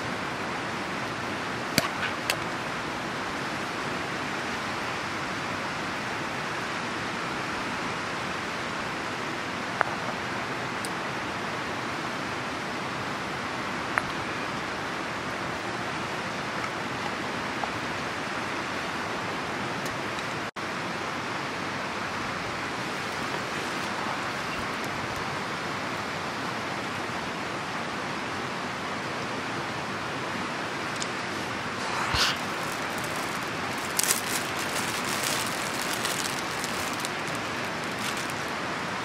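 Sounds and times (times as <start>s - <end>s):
steady rushing hiss: 20.6s - 39.0s.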